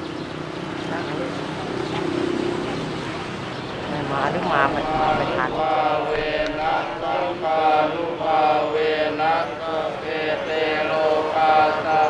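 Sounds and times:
voices chanting together: 3.6 - 12.0.

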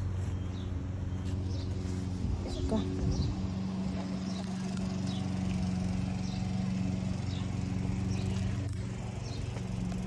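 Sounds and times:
small birds chirping: 0.0 - 10.0
motor humming: 0.4 - 10.0.

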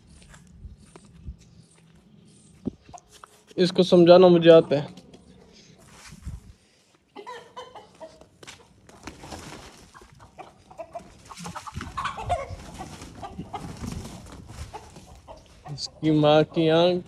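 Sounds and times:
rooster clucking: 7.1 - 8.3, 9.9 - 17.0.

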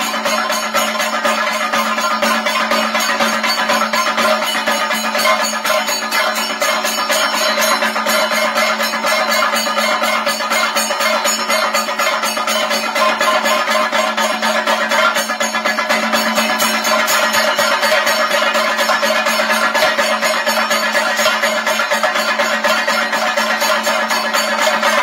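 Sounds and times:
drums beaten fast with sticks: 0.0 - 25.0
hand cymbals ringing: 0.0 - 25.0.

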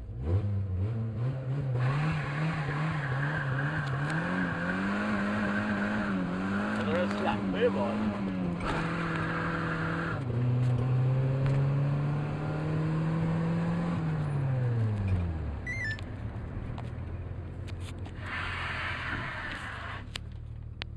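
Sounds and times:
car engine idling: 15.4 - 20.9
hiss: 18.2 - 20.1.

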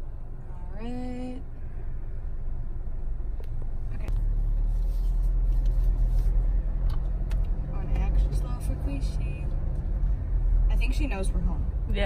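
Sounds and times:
car engine rumble inside cabin: 0.0 - 12.0.

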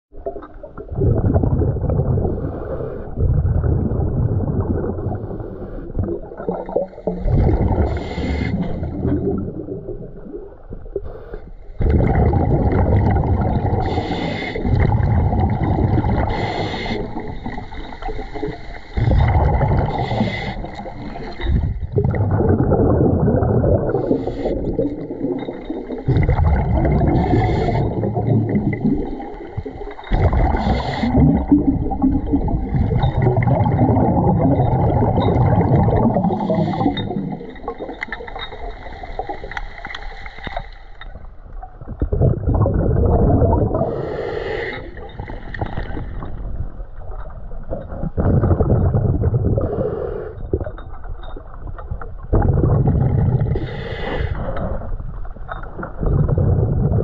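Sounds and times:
gurgling bubbles: 0.1 - 40.0, 41.0 - 57.0
underwater breathing: 2.2 - 3.2, 7.0 - 9.6, 11.0 - 41.3, 43.5 - 46.6, 48.2 - 50.8, 52.5 - 55.1.

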